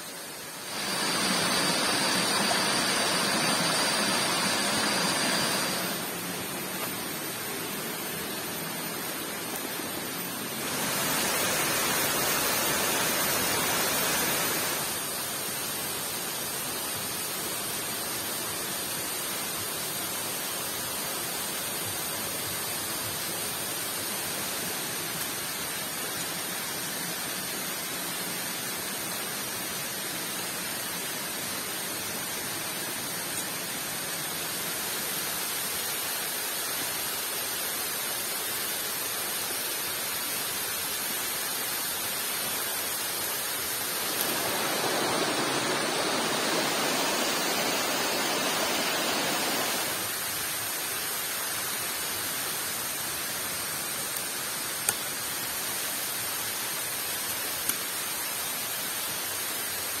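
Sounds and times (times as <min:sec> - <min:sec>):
waterfall rushing: 0:00.0 - 0:15.6, 0:36.9 - 1:00.0.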